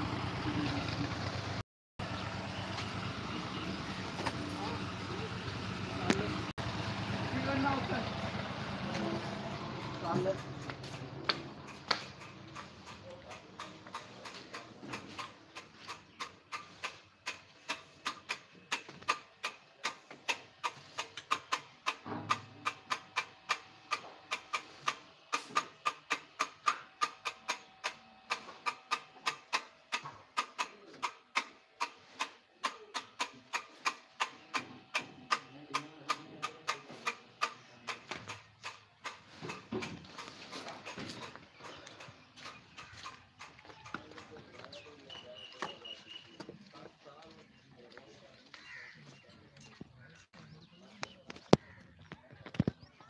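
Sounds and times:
sharp clicks: 10.3s - 44.8s.

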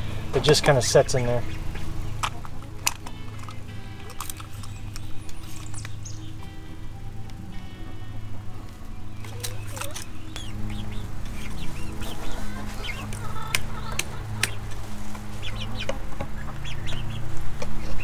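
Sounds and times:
chickens clucking: 8.6s - 18.0s.

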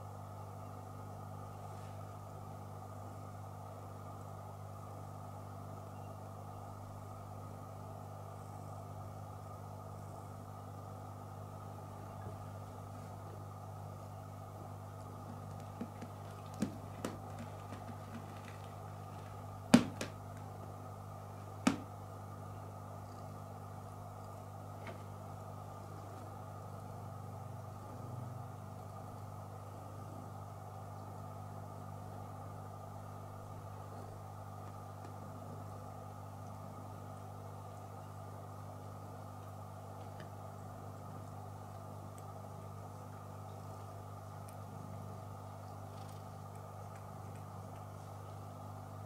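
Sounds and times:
steady low hum: 0.0s - 49.0s.

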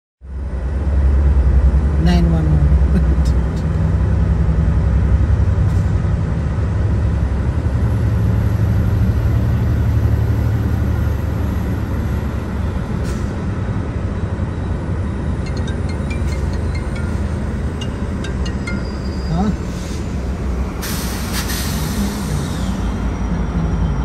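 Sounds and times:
locomotive low drone: 0.2s - 24.0s.

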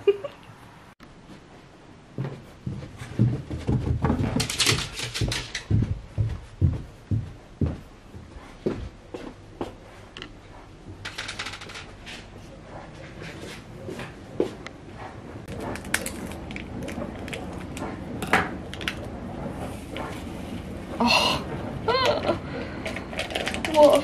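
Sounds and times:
footsteps on wooden floor: 2.1s - 11.0s.

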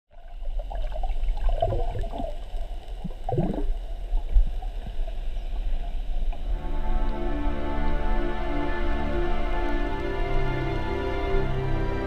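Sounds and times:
underwater bubbling gurgles: 0.1s - 6.4s
underwater low rumble: 0.1s - 7.2s.

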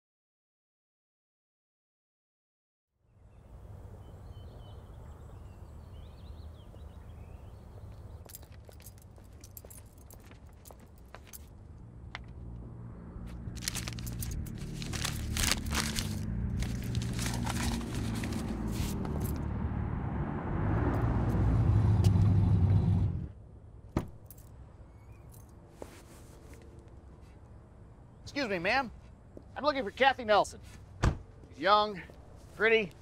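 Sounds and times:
car engine running: 13.2s - 19.5s
scraping and crackling: 13.5s - 19.4s.

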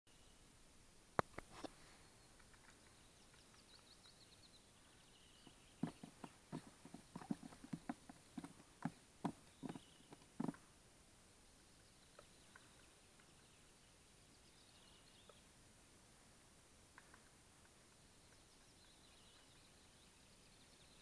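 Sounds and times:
songbird trill: 1.8s - 10.6s, 11.4s - 15.6s, 17.0s - 21.0s
soft knocks and taps: 5.4s - 10.6s.

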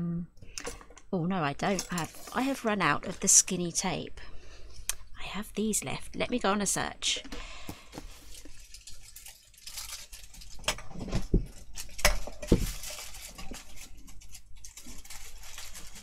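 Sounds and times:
small hard objects clattering: 1.6s - 3.6s, 7.8s - 16.0s.

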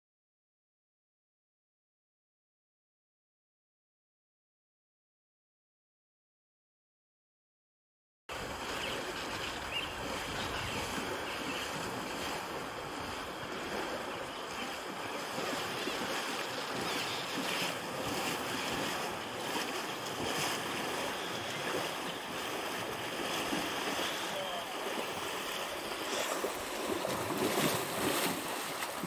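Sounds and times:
horse splashing through water: 8.3s - 29.0s.

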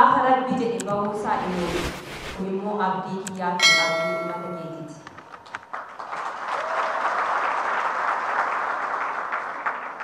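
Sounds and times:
audience applauding: 5.3s - 10.0s.

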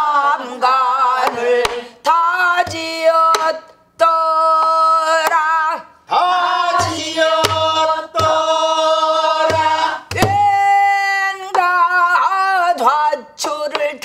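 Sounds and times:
barrel drum strokes: 6.8s - 10.4s.

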